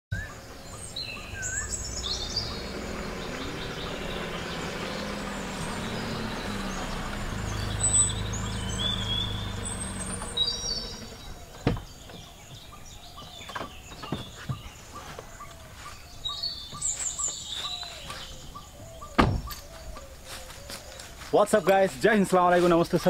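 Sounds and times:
birds chirping: 0.1 - 23.0
car engine hum: 0.1 - 23.0
car door opening click: 19.2 - 19.6.

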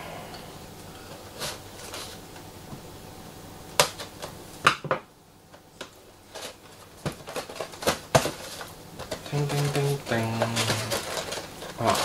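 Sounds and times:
packing tape being slit: 5.8 - 12.0.

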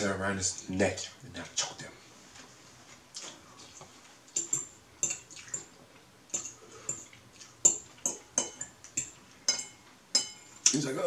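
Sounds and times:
slurping and chewing: 3.0 - 4.5, 5.1 - 9.4.

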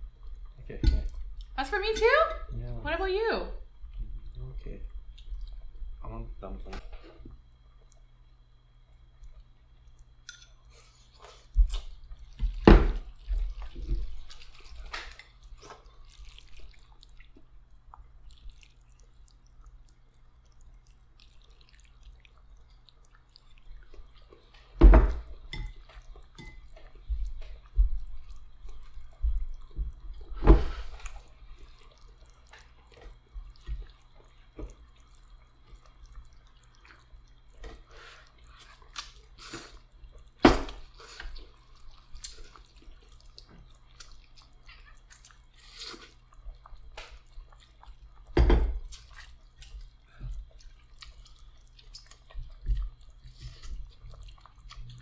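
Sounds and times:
food chewing: 0.0 - 1.6, 3.7 - 5.9, 7.0 - 55.0
low steady hum: 0.0 - 55.0
noodles slurped: 13.1 - 24.2, 30.8 - 48.3.

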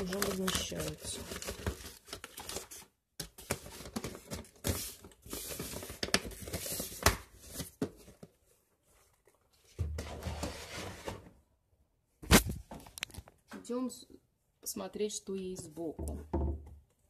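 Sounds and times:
medicine packets rustling: 0.0 - 9.5.

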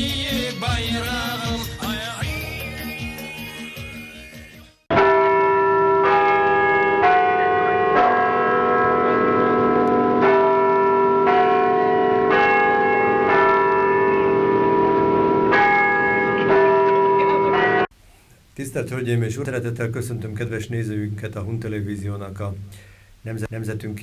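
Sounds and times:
person singing a song: 0.0 - 3.7
bells ringing: 0.0 - 17.9.

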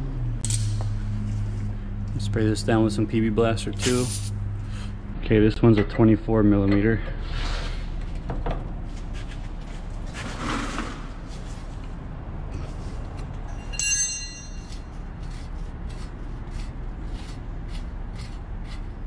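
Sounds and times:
steady low hum: 0.0 - 19.0
hand tool scraping: 12.6 - 19.0
sharp metallic clink: 13.5 - 14.9.

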